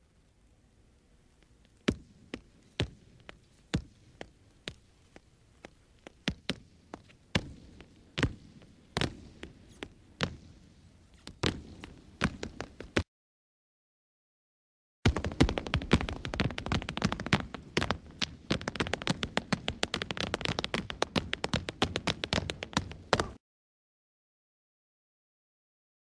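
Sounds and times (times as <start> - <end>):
flamenco footwork heel and toe strikes: 1.9 - 10.6, 11.2 - 13.0, 15.1 - 23.4.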